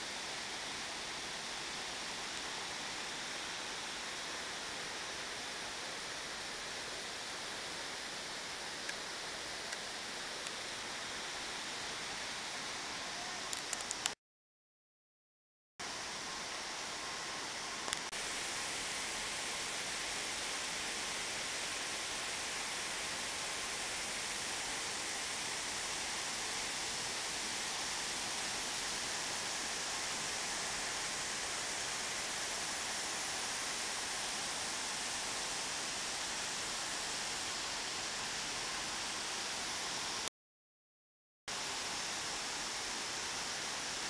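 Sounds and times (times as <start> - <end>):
waterfall rushing: 15.9 - 40.2.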